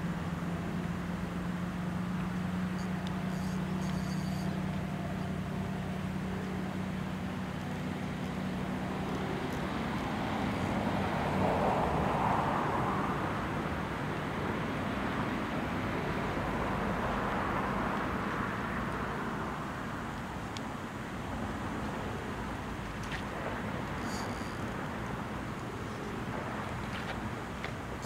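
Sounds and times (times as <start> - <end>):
low engine hum: 0.0 - 28.0
vehicle passing: 2.8 - 20.0.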